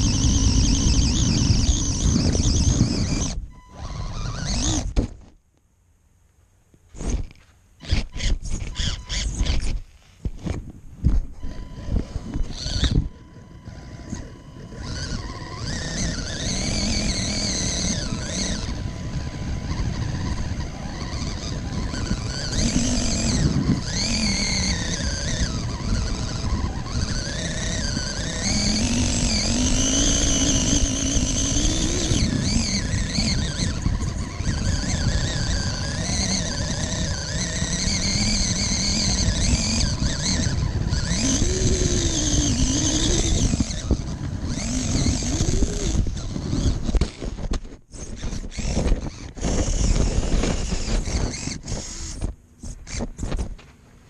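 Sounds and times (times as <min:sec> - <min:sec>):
electric motor whining: 0:00.0 - 0:05.1, 0:07.0 - 0:53.6
tyres grinding through gravel: 0:11.3 - 0:52.2.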